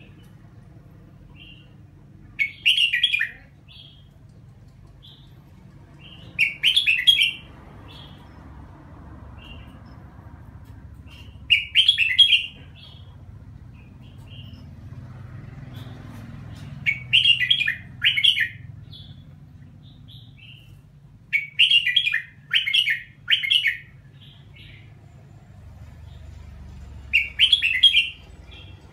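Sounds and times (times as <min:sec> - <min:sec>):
bird singing chattering phrases: 0:00.0 - 0:08.5, 0:10.6 - 0:24.9
soft bird chirps: 0:00.0 - 0:28.9.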